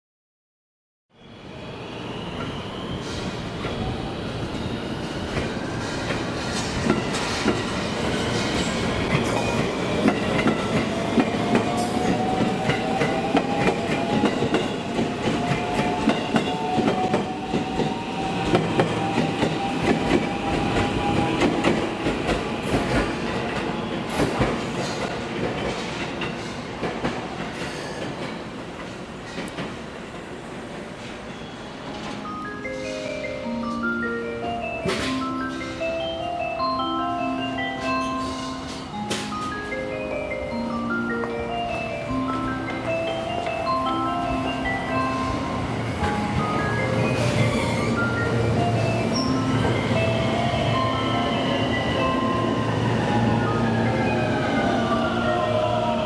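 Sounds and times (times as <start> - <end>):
train wheels clacking: 5.0 - 31.2.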